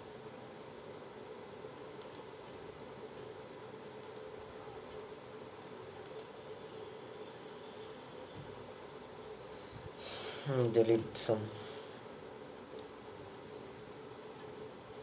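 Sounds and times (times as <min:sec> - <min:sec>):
room noise hum and hiss: 0:00.0 - 0:15.0
computer mouse clicks: 0:02.0 - 0:02.3, 0:04.0 - 0:04.4, 0:06.0 - 0:06.4.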